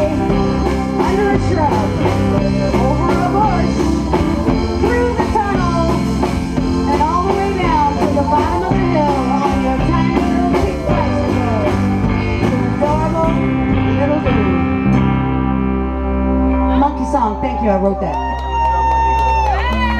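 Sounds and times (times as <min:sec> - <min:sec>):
woman singing: 0:00.0 - 0:06.1, 0:06.8 - 0:14.7
live band playing: 0:00.0 - 0:19.9.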